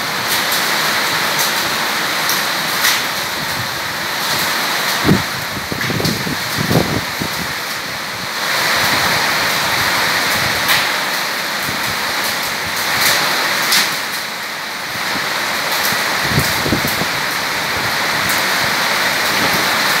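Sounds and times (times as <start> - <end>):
heavy rain on metal roof: 0.0 - 20.0
wind gusting on microphone: 3.3 - 10.8, 14.9 - 20.0.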